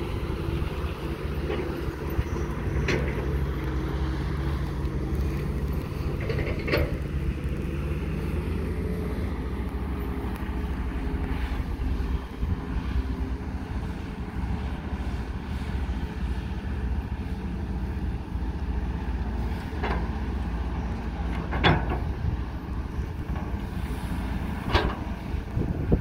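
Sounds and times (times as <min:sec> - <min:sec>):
diesel engine rumbling: 0:00.0 - 0:26.0
wind on microphone: 0:21.8 - 0:26.0.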